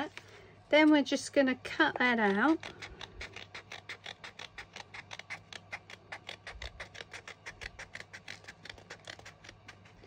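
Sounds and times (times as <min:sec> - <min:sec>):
scissors snipping card: 0:02.2 - 0:10.0.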